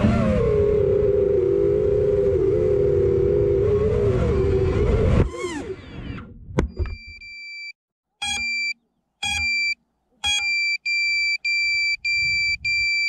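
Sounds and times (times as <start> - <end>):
buzzer click: 8.2 - 10.7
electronic buzzer beeping: 8.2 - 13.0.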